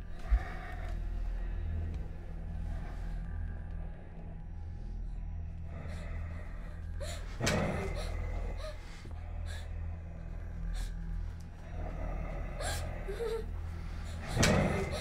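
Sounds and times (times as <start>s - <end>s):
low steady hum: 0.0s - 15.0s
girl breathing hard: 5.9s - 9.8s.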